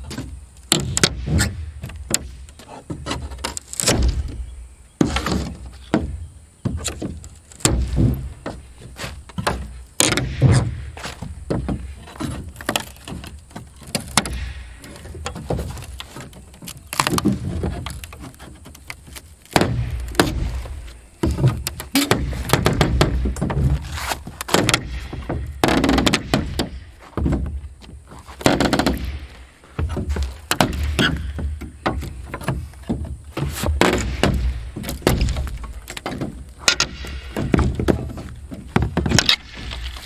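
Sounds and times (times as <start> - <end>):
pry bar scraping plywood: 0.0 - 40.0
roofing membrane tearing: 12.0 - 26.8.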